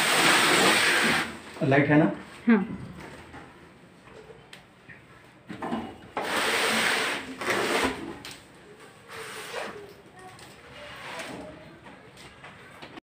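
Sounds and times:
refrigerator scraping on stand: 6.2s - 8.2s, 10.7s - 11.6s.

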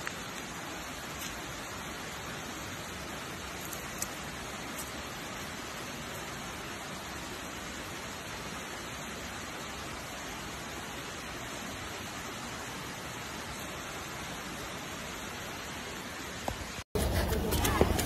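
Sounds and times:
steady hiss: 0.0s - 16.8s.

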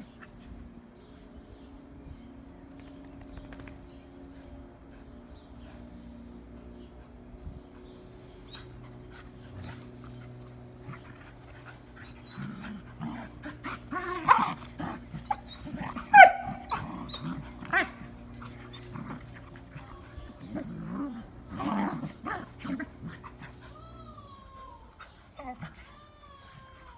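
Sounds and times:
dogs growling: 8.6s - 26.0s
dog yelping: 15.3s - 17.9s.

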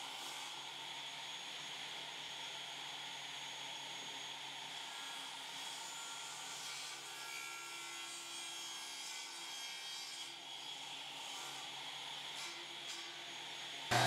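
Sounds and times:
table saw cutting wood: 0.0s - 0.7s, 4.6s - 14.0s.

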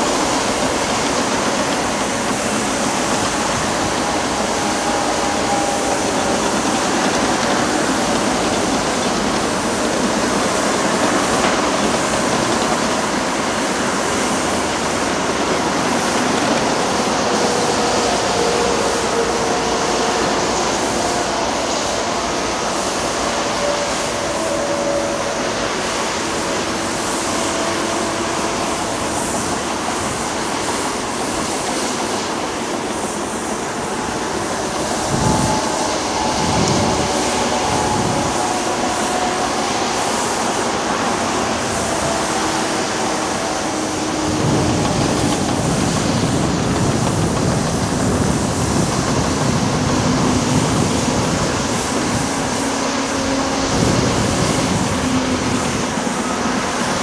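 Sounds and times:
faint hums drifting in pitch: 0.0s - 13.5s, 33.8s - 46.3s
motorway traffic roar: 0.0s - 57.0s.

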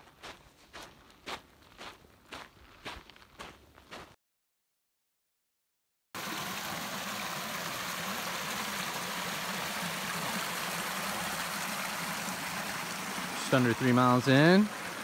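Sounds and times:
creek flowing over rocks: 6.2s - 15.0s.

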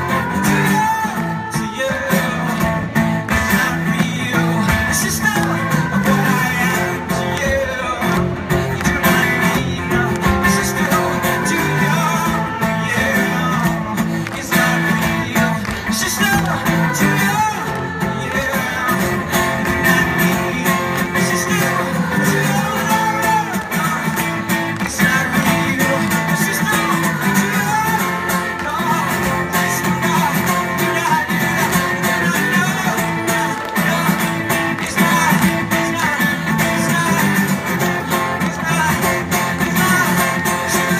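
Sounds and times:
acoustic guitar strumming: 0.0s - 40.9s
person singing: 0.0s - 40.9s.

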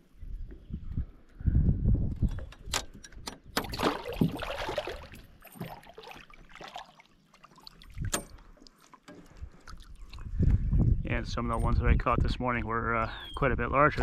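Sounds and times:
water splashing and dripping: 3.6s - 10.5s.

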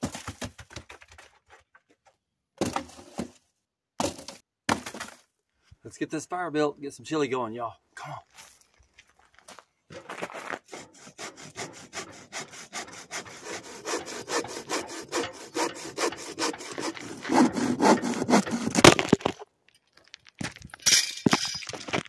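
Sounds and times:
bow saw cutting log: 10.7s - 19.2s.

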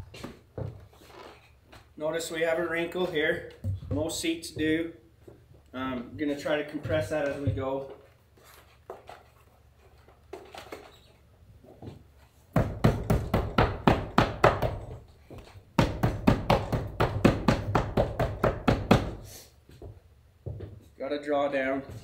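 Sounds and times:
rapid tapping on leather: 12.6s - 19.2s.

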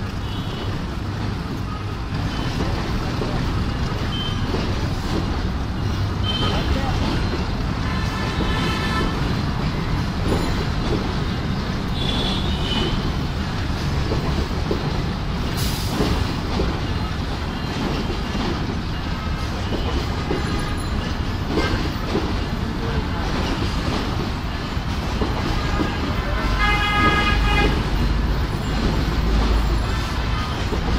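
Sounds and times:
train wheels rumbling on track: 0.0s - 30.9s.

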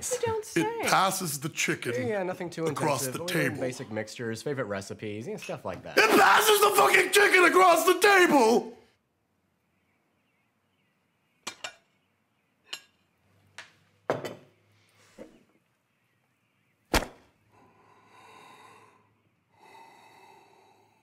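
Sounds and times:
cutlery clicking against plates: 11.5s - 11.8s
soft breathy sounds: 17.4s - 21.0s.

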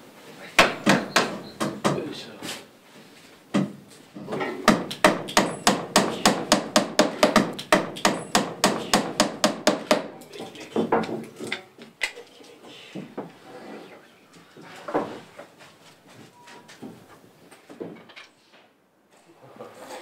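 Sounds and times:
hammer striking wood: 0.6s - 2.0s, 4.6s - 10.2s.

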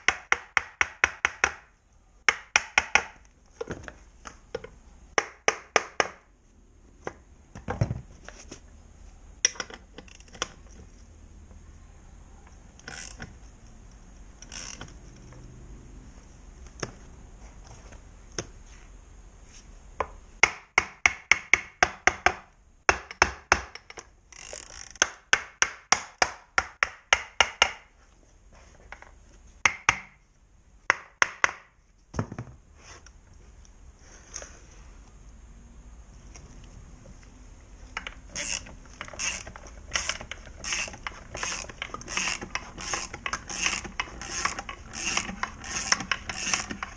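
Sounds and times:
socket ratchet clicking: 14.4s - 15.0s, 38.0s - 46.9s.

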